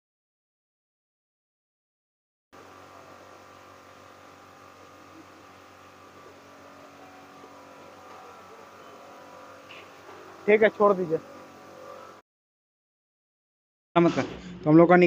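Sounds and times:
electric shutter motor humming: 0:02.6 - 0:12.2.

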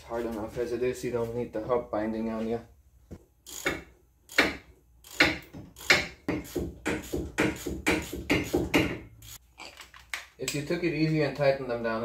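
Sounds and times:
hand ratchet clicking: 0:03.4 - 0:09.4.

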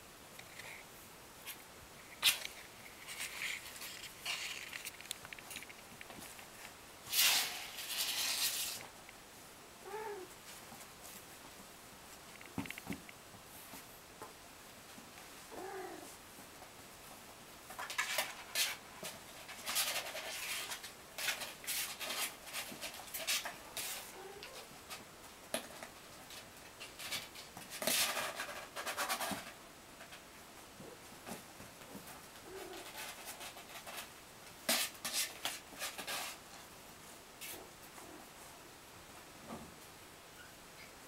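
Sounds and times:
kittens scrabbling and scratching: 0:01.4 - 0:09.0, 0:16.0 - 0:36.7.

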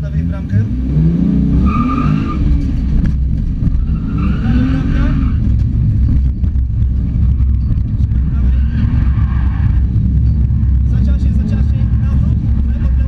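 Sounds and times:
car engine revving: 0:00.0 - 0:13.0
tyres squealing: 0:03.8 - 0:05.5, 0:07.2 - 0:10.5.

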